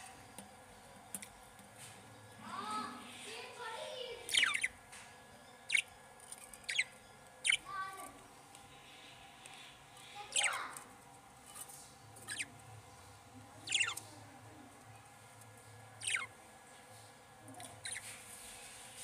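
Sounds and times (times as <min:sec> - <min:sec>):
budgerigars chirping: 0:04.3 - 0:04.8, 0:05.7 - 0:05.9, 0:06.7 - 0:07.7, 0:10.3 - 0:10.6, 0:12.2 - 0:12.6, 0:13.6 - 0:14.0, 0:16.0 - 0:16.3, 0:17.8 - 0:18.1.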